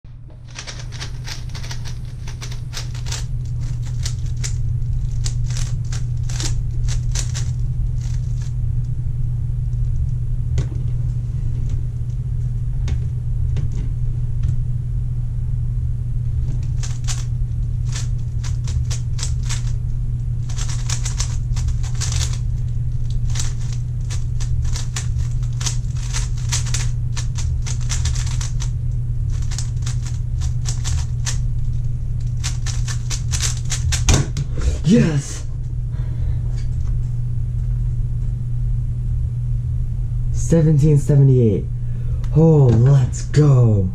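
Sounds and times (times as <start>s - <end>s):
steady low hum: 0.1s - 43.9s.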